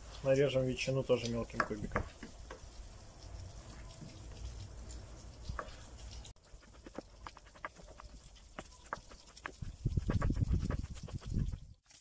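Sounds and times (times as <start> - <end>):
knife slicing ham: 6.4 - 11.6.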